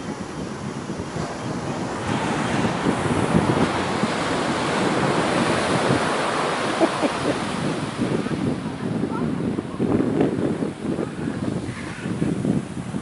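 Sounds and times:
foam rushing up sand: 0:00.0 - 0:09.1
ocean wave breaking: 0:00.0 - 0:13.0.

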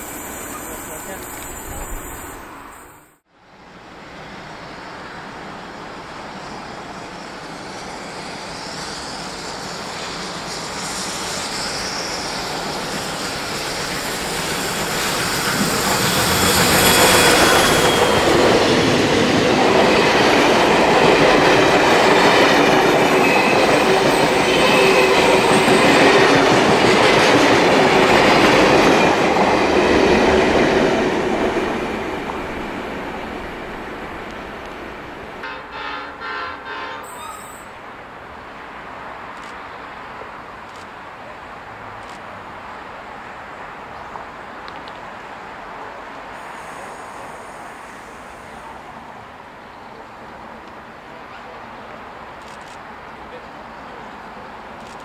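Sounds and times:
steam locomotive passing: 0:00.0 - 0:55.0
wheel squeal: 0:37.0 - 0:37.7.

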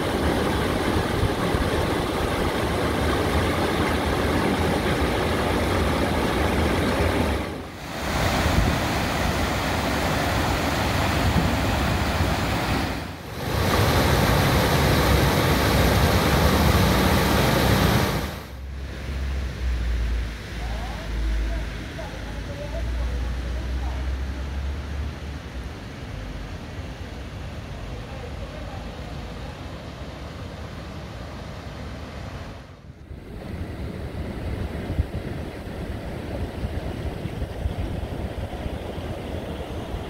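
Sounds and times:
water rushing into drain: 0:00.0 - 0:19.8.

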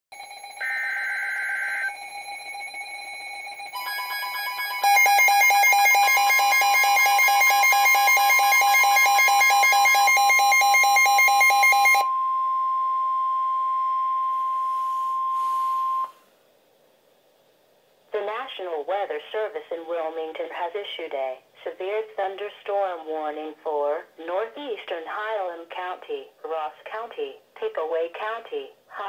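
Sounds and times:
steady long warning tone: 0:00.2 - 0:10.5, 0:11.7 - 0:16.3
pulsing alarm beep: 0:00.2 - 0:14.4, 0:15.1 - 0:16.2.

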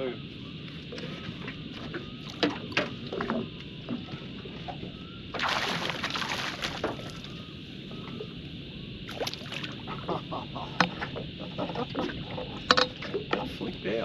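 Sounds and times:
water splashing: 0:05.4 - 0:07.4, 0:09.1 - 0:09.8.

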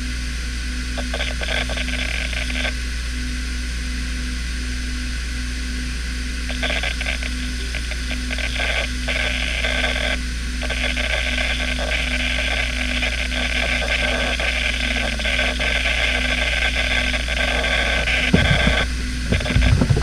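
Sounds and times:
hard drive spinning hum: 0:00.0 - 0:20.0
hard drive seek chatter: 0:00.8 - 0:02.8, 0:06.2 - 0:20.0
heavy low knocks: 0:18.3 - 0:20.0.

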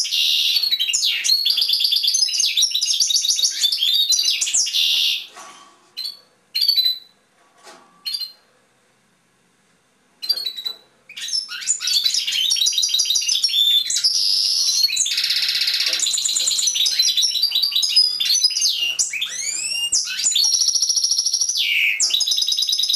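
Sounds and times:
goldfinch singing: 0:00.0 - 0:05.3, 0:10.2 - 0:22.9.

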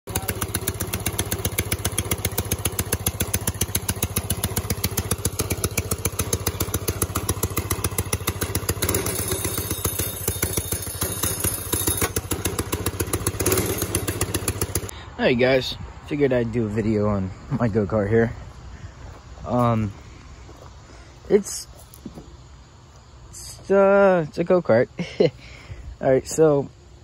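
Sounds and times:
small engine idling: 0:00.0 - 0:15.1.

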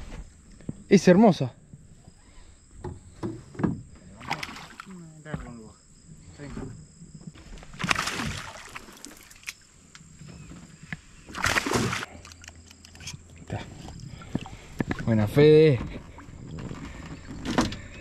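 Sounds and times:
fish splashing at water surface: 0:04.2 - 0:05.0, 0:07.7 - 0:09.6, 0:11.3 - 0:12.4.

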